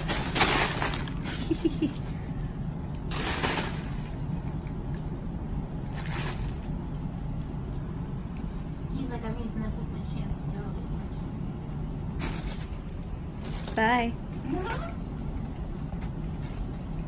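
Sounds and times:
plastic packing film crinkling: 0.0s - 2.1s
steady low hum: 0.0s - 17.0s.

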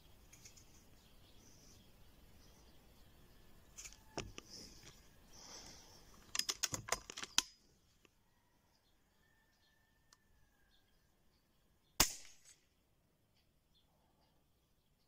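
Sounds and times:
air rifle mechanical clicks: 6.1s - 7.6s.

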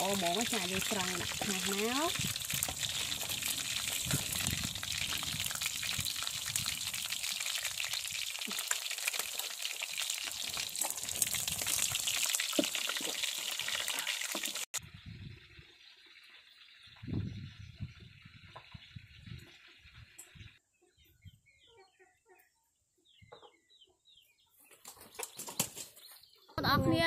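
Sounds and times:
fish sizzling in hot oil: 0.0s - 16.9s.

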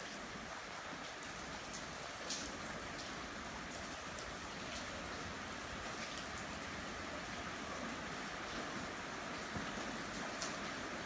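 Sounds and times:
heavy rain falling: 0.0s - 11.0s
raindrops tapping surfaces: 0.0s - 11.0s.

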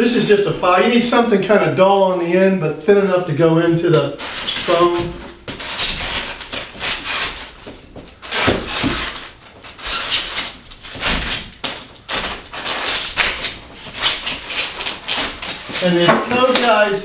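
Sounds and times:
metal file scraping foam: 12.6s - 16.6s.

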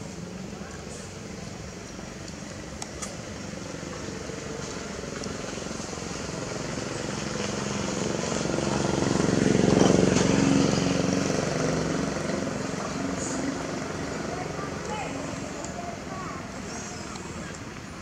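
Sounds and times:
vehicle engine passing by: 4.2s - 16.8s.

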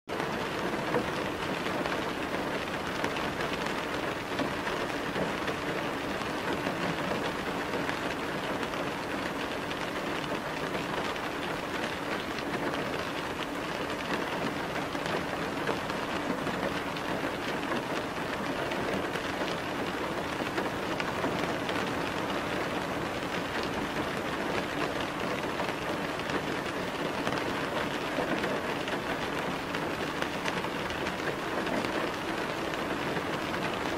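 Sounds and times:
steady rain falling: 0.1s - 33.9s.

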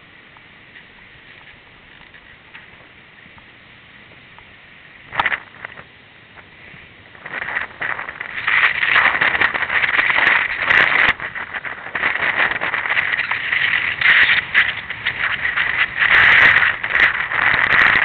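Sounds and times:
wind buffeting microphone: 0.9s - 18.0s.

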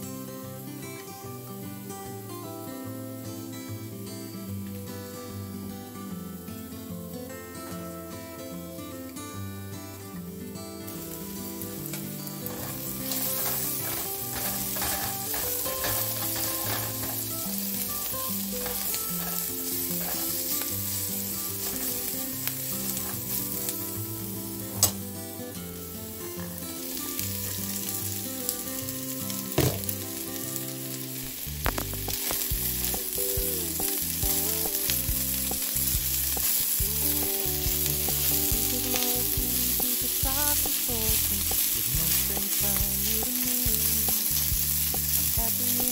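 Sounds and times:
onions sizzling in oil: 10.9s - 45.9s
spatula scraping pan: 11.9s - 22.2s, 22.8s - 23.7s.

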